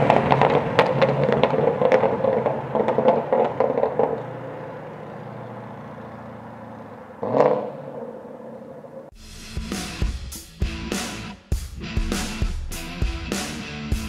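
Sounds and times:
car exhaust crackling: 0.0s - 9.1s
engine revving: 0.0s - 14.0s
rock music: 9.2s - 14.0s.

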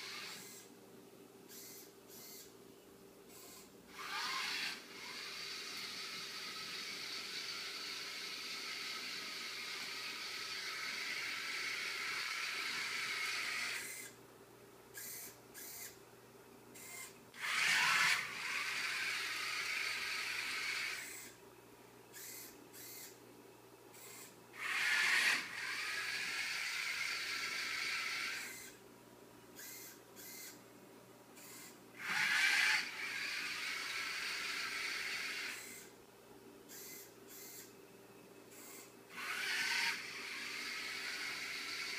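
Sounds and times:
servo whirring: 0.0s - 0.7s, 1.5s - 2.5s, 3.3s - 14.2s, 15.0s - 16.0s, 16.8s - 21.4s, 22.1s - 23.2s, 24.0s - 28.8s, 29.6s - 30.6s, 31.4s - 35.9s, 36.7s - 37.7s, 38.5s - 41.9s
small gear motors whining: 0.0s - 0.7s, 1.5s - 2.5s, 3.3s - 14.2s, 15.0s - 16.0s, 16.8s - 21.4s, 22.1s - 23.2s, 24.0s - 28.8s, 29.6s - 30.6s, 31.4s - 35.9s, 36.7s - 37.7s, 38.5s - 41.9s.

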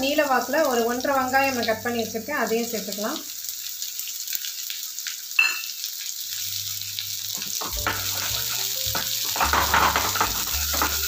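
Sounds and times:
onions sizzling in hot oil: 0.0s - 11.0s
wooden spatula scraping: 7.4s - 11.0s.

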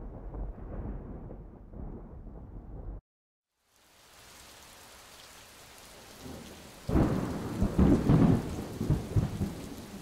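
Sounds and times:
thunder rumbling: 0.0s - 3.0s, 6.2s - 10.0s
steady rain: 3.5s - 10.0s.

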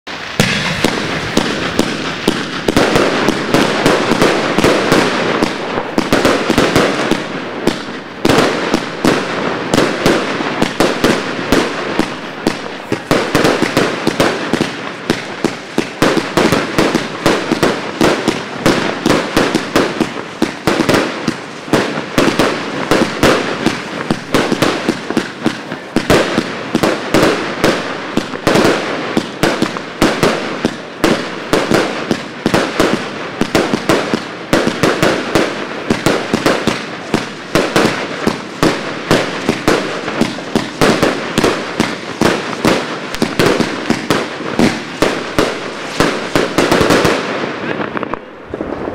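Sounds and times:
firework star bursts: 0.1s - 48.9s
firework launch thumps: 0.3s - 4.2s.

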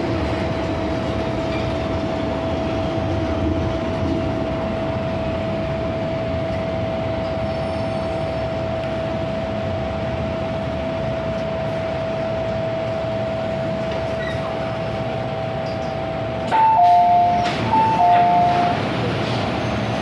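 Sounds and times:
train carriage hum and whine: 0.0s - 20.0s
onboard announcement: 16.5s - 18.9s.

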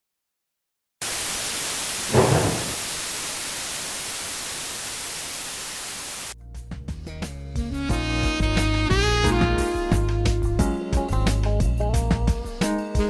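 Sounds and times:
static crackle: 1.0s - 6.4s
tv static hiss: 1.0s - 6.4s.

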